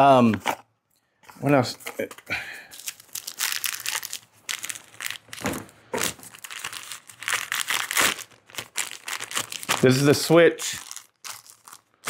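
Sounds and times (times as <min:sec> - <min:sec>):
plastic packaging crinkling: 0:02.7 - 0:12.0.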